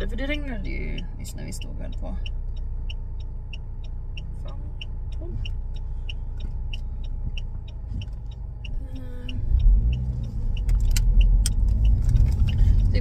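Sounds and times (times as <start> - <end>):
car engine: 0.0 - 13.0
dashboard indicator ticking: 0.0 - 13.0
sharp clicks: 3.5 - 12.9.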